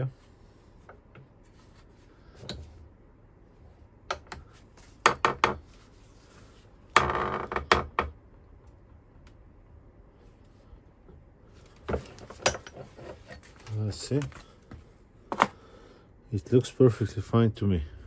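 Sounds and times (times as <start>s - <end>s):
metal vise clicking and clanking: 11.9s - 13.5s.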